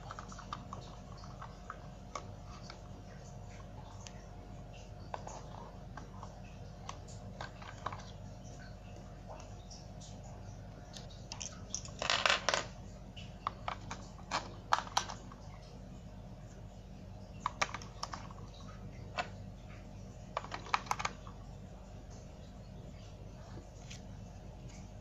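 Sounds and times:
plastic rattling: 0:00.0 - 0:04.2, 0:05.1 - 0:08.2, 0:10.9 - 0:12.7, 0:13.4 - 0:15.4, 0:20.4 - 0:21.3.

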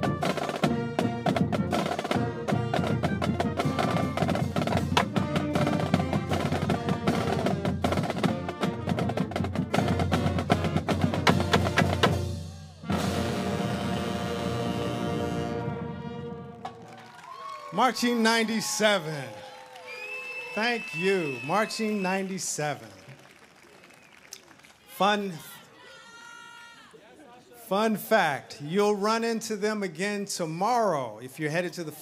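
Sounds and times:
heavy drumming: 0:00.0 - 0:13.3
marching band playing a fast tune: 0:00.0 - 0:19.3, 0:20.6 - 0:22.8.

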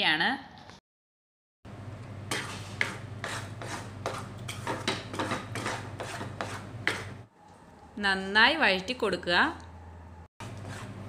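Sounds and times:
utensil stirring thick mixture: 0:02.3 - 0:07.3, 0:10.4 - 0:11.0.

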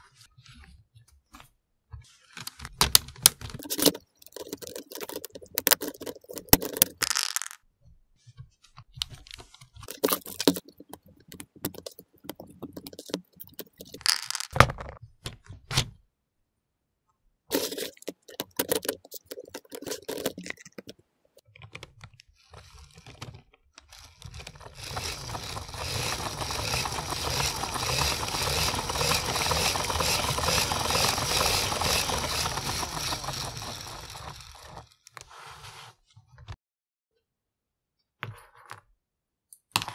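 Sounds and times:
plastic parts clicking and clattering: 0:02.2 - 0:07.6, 0:08.6 - 0:16.0, 0:17.5 - 0:35.3
gear train whirring: 0:22.5 - 0:35.2.

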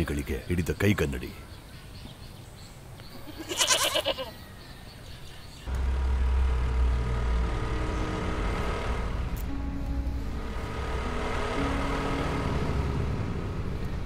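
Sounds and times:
low rumble of street traffic: 0:00.0 - 0:14.0
wavering bleat: 0:03.2 - 0:04.3.

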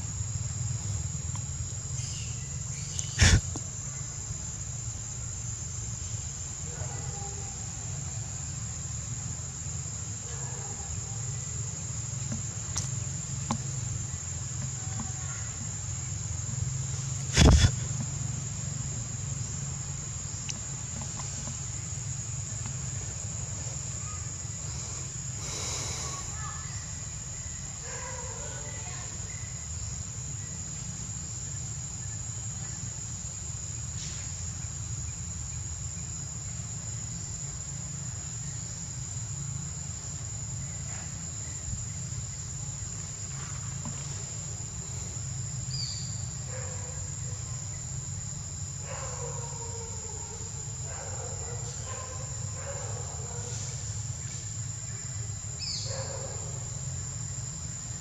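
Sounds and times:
insects droning: 0:00.0 - 0:58.0
faint bird chirps: 0:01.9 - 0:04.2.

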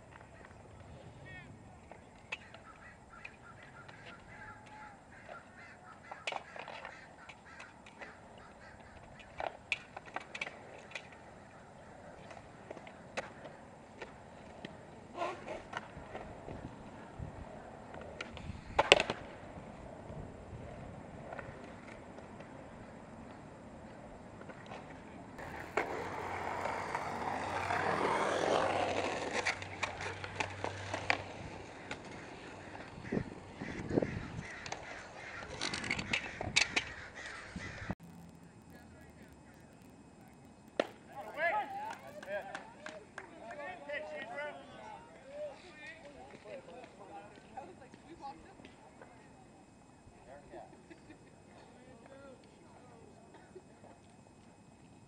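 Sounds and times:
skateboard wheels rolling on concrete: 0:00.0 - 0:55.0
steady outdoor hiss: 0:00.0 - 0:55.0
skateboard decks knocking: 0:01.8 - 0:37.4
sharp skateboard clacks: 0:01.9 - 0:16.6, 0:17.9 - 0:19.6, 0:24.4 - 0:37.8, 0:39.3 - 0:43.7
distant harsh calls: 0:02.3 - 0:09.4, 0:25.4 - 0:38.7.

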